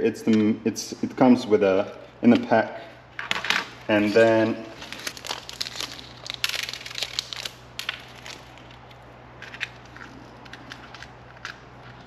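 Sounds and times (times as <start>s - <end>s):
plastic packaging crinkling: 3.9s - 12.0s.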